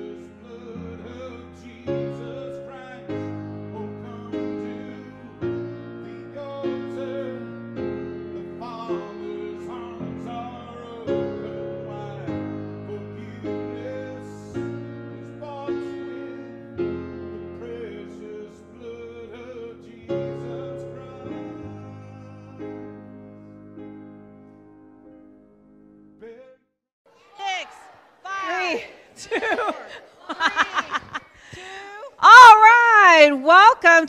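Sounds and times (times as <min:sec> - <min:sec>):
slow piano music: 0:00.0 - 0:26.4.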